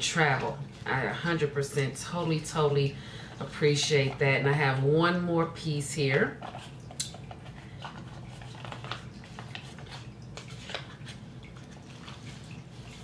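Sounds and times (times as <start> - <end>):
wrapper rustling and clicking: 6.4 - 13.0.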